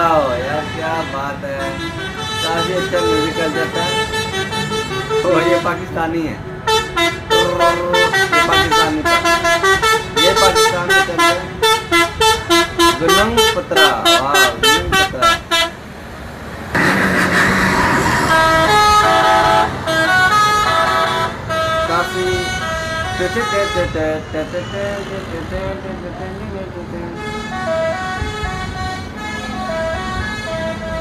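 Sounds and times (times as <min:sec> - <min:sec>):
bus horns playing a melody: 0:00.0 - 0:06.0, 0:06.6 - 0:15.8, 0:16.7 - 0:25.3, 0:27.0 - 0:31.0
loud rushing noise: 0:16.0 - 0:20.0.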